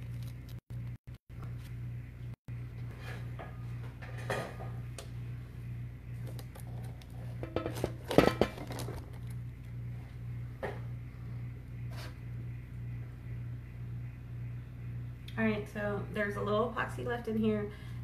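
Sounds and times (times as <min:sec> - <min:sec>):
steady low hum: 0:00.0 - 0:18.0
metal tray clinking: 0:07.4 - 0:09.0.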